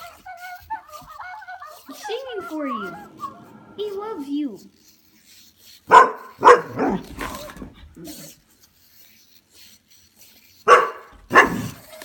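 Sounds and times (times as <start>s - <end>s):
dog barking: 5.9s - 7.5s, 10.7s - 11.8s.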